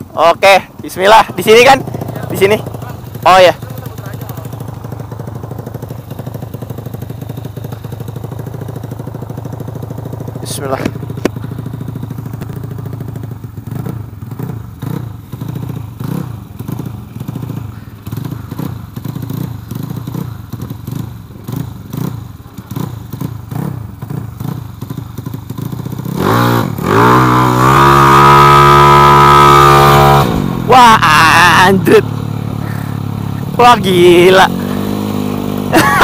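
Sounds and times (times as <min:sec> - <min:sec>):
two-stroke scooter engine revving: 0:00.0 - 0:36.0.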